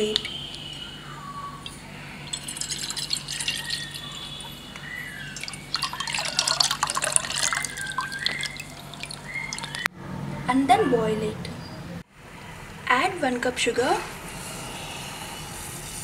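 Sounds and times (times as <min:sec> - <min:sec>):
milk pouring into metal pot: 0:02.3 - 0:04.1, 0:05.4 - 0:09.8.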